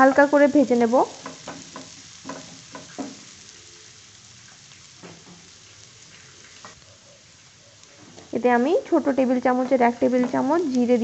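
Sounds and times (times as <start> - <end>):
onions sizzling in oil: 0.0 - 11.0
spatula scraping and knocking pan: 1.2 - 3.3, 9.4 - 10.7.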